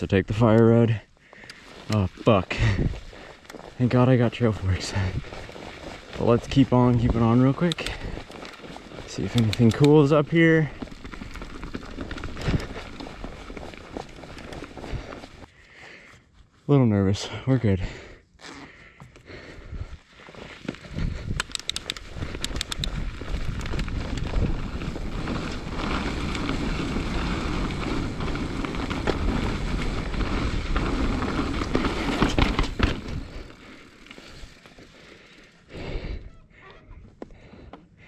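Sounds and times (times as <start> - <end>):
bike tyres rumbling: 0.0 - 15.6, 18.9 - 37.8
bike rattling over bumps: 1.3 - 15.5, 20.3 - 36.3.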